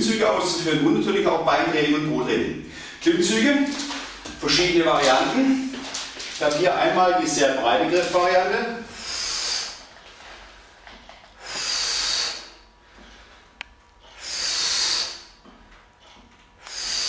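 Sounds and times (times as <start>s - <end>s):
man breathing heavily: 2.6s - 3.0s, 8.8s - 10.6s, 11.4s - 15.7s, 16.6s - 17.0s.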